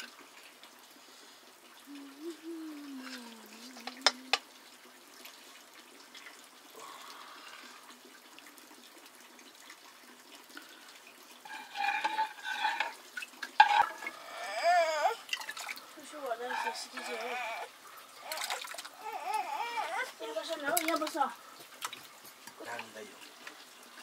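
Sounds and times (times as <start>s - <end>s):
wavering call: 1.9s - 4.4s.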